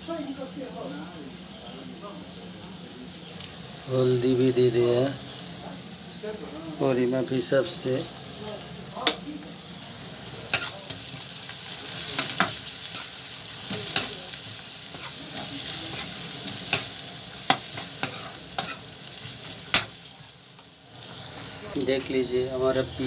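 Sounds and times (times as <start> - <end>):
onions sizzling in hot oil: 0.0 - 23.0
metal ladle scraping a pan: 14.8 - 20.0.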